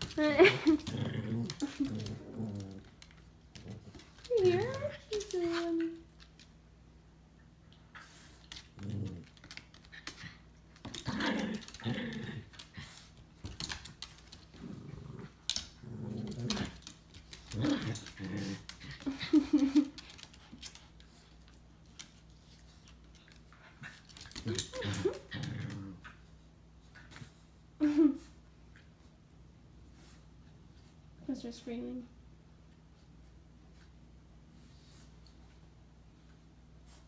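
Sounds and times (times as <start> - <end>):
dogs growling: 0.0 - 5.3, 8.6 - 9.6, 10.9 - 13.0, 14.5 - 19.9, 24.3 - 26.1.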